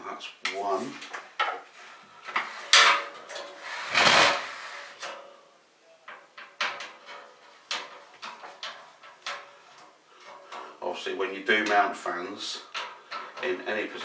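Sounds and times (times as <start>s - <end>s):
clicks and knocks of screws: 6.1s - 10.7s.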